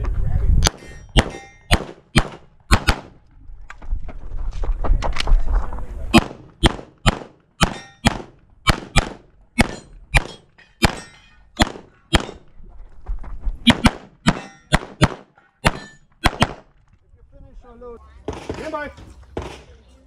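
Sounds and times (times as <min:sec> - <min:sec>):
pistol shots: 0:00.6 - 0:03.2, 0:06.1 - 0:12.5, 0:13.7 - 0:16.7
metallic ring: 0:00.8 - 0:01.7.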